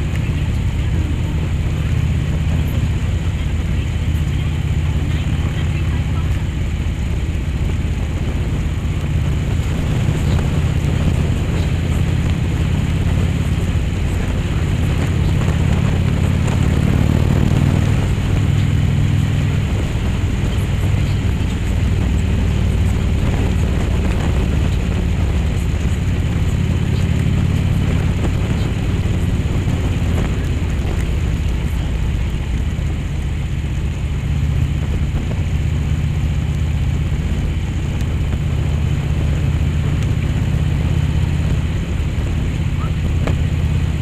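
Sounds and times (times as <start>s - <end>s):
motorcycle engine running: 0.0s - 44.0s
wind rush: 0.0s - 44.0s.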